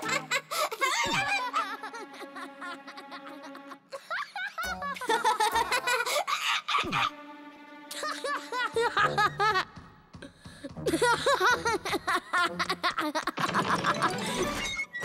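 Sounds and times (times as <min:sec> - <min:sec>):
cartoon characters giggling: 0:00.0 - 0:07.1, 0:10.8 - 0:14.7
light background music: 0:00.0 - 0:15.0.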